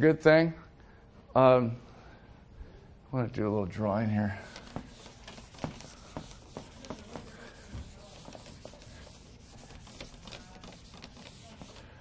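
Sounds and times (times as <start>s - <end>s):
rubbing and scuffing: 4.4s - 11.9s.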